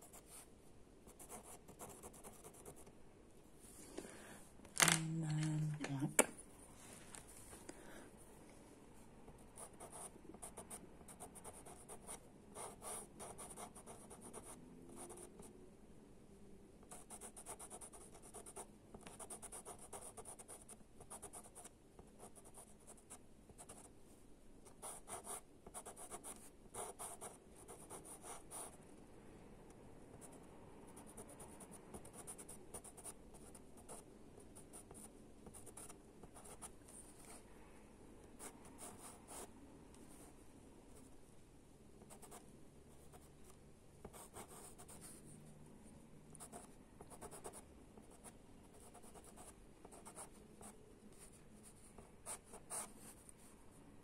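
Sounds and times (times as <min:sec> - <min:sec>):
pencil scratching on paper: 0:01.1 - 0:02.9, 0:09.6 - 0:15.5, 0:16.9 - 0:23.9, 0:24.7 - 0:28.8, 0:34.6 - 0:37.4, 0:43.1 - 0:45.2, 0:46.4 - 0:53.3.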